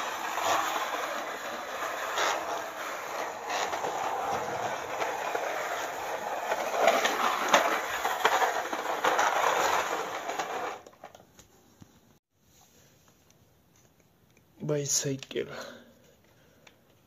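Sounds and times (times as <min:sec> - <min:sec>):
plastic toy tracks clattering: 0:00.0 - 0:11.2.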